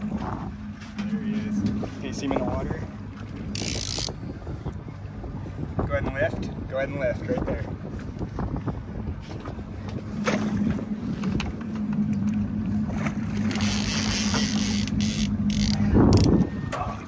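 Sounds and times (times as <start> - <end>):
low rumble: 0.0 - 17.0
outboard motor idling: 8.8 - 17.0.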